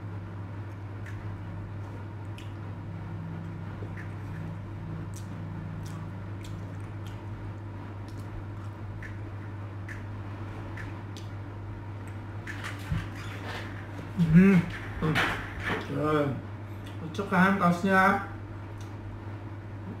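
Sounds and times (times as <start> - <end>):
steady low hum: 0.0 - 20.0
mouth chewing cake: 3.3 - 10.1.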